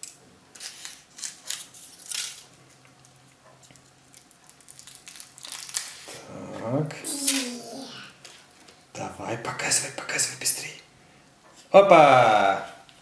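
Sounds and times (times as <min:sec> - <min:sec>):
foil wrapper crinkling: 0:03.7 - 0:06.1.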